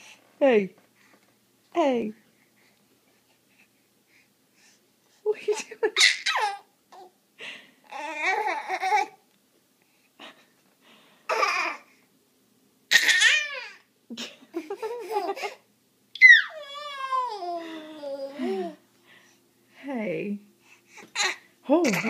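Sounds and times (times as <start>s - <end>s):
baby squealing: 6.0s - 6.6s, 12.9s - 13.8s, 16.2s - 17.5s
baby babbling and laughing: 6.0s - 7.1s, 7.9s - 9.2s, 11.3s - 11.9s, 12.9s - 13.8s, 16.2s - 18.8s, 21.1s - 22.0s.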